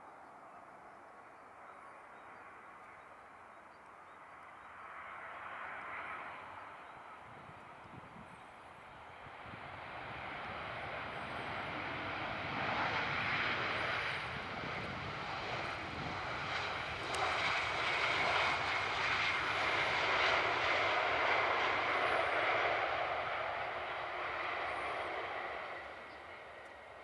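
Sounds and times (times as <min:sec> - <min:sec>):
jet airliner landing rollout: 0:08.8 - 0:27.0.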